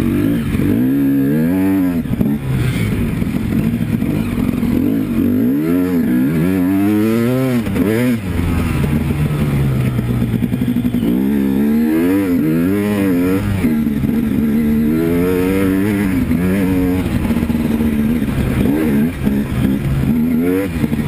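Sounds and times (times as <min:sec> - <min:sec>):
dirt bike engine revving: 0:00.0 - 0:21.0.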